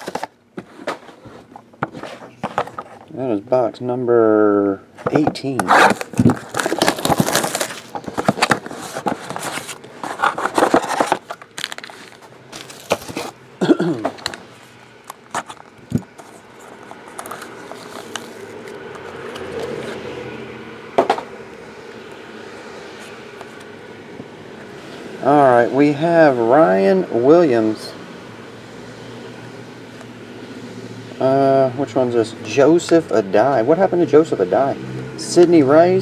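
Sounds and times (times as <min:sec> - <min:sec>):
cards scraping and clicking: 0:05.0 - 0:13.4, 0:14.0 - 0:20.1
plastic wrap crinkling and tearing: 0:05.6 - 0:13.4, 0:15.3 - 0:20.0.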